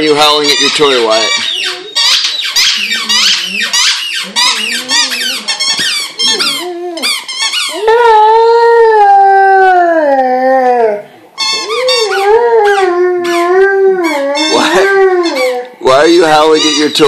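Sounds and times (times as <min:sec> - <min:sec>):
squeaky toy squeaking: 0:00.0 - 0:07.8, 0:11.4 - 0:13.4, 0:14.0 - 0:15.6, 0:16.2 - 0:17.0
dog whining: 0:00.3 - 0:17.0
dog howling: 0:01.1 - 0:15.8.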